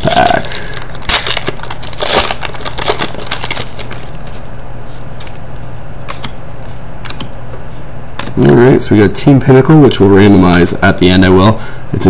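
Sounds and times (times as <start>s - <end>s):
foil wrapper crinkling: 0.0s - 4.5s
cards clicking: 7.0s - 7.3s.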